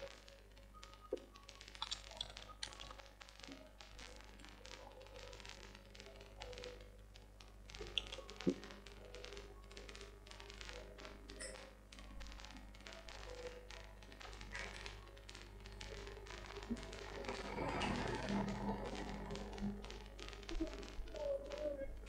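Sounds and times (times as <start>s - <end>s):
computer keyboard typing: 1.0s - 7.0s, 7.8s - 22.0s
steady low hum: 11.3s - 22.0s.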